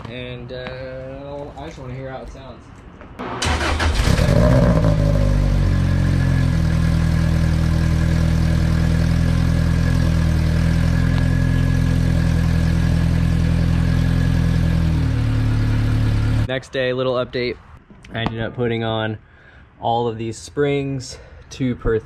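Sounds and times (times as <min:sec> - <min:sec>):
car engine idling: 0:03.2 - 0:16.5.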